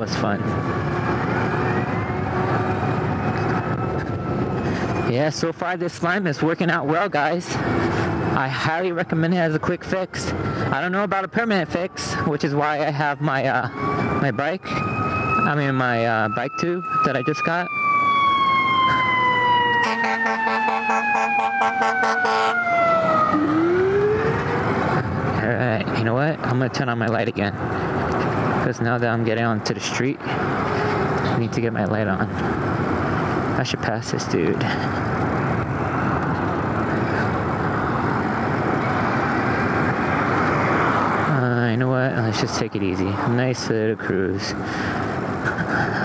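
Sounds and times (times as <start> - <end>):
pulsing siren yelp: 0.0 - 5.2, 10.3 - 25.2
fire engine siren wailing: 0.0 - 9.0, 9.6 - 25.9, 29.6 - 33.6, 34.4 - 41.6
road traffic: 0.0 - 46.0.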